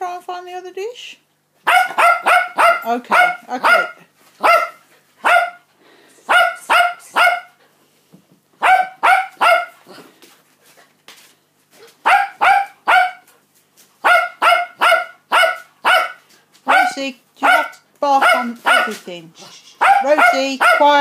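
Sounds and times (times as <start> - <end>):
dog barking: 1.6 - 5.7, 6.3 - 7.6, 8.6 - 9.8, 12.0 - 13.3, 14.0 - 19.1, 19.8 - 21.0.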